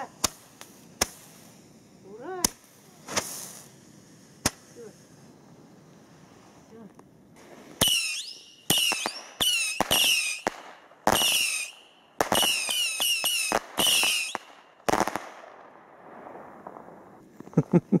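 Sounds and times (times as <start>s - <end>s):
firework shots cracking: 0.0s - 17.3s
faint hiss: 0.0s - 18.0s
falling firework whistle: 7.8s - 10.5s, 11.1s - 14.6s.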